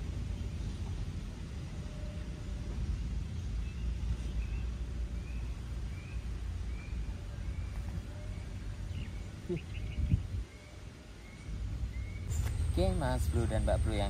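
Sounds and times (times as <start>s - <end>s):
low rumble: 11.6s - 14.0s.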